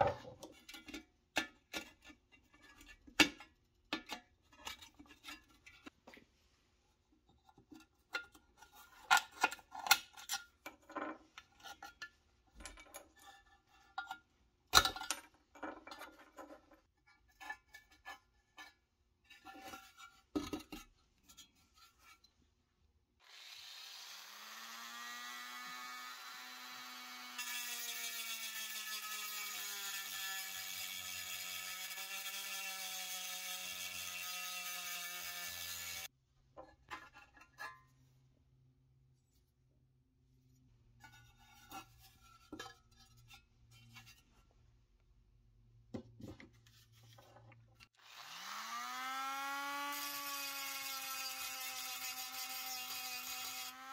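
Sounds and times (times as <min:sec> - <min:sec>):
drill bit grinding metal: 0:23.2 - 0:36.1, 0:48.0 - 0:53.9
rotary tool whining: 0:23.2 - 0:36.1.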